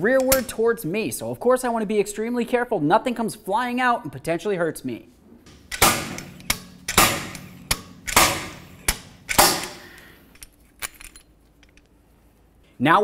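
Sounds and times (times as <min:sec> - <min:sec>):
slide hammer weight clicking: 0:00.2 - 0:00.5, 0:05.5 - 0:10.5
slide hammer metal strikes: 0:05.5 - 0:10.0.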